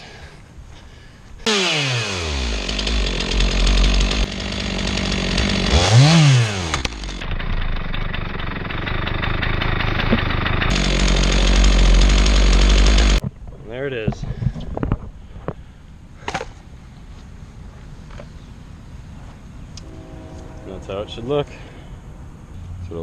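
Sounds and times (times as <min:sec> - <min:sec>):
chainsaw cutting at full throttle: 0:01.4 - 0:07.2, 0:10.6 - 0:13.2.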